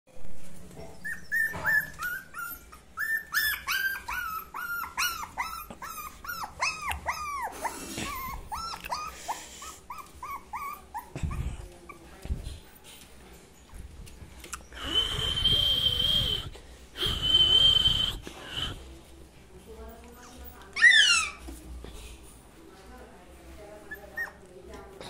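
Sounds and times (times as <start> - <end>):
puppies whining: 0.8 - 12.1, 20.2 - 21.5.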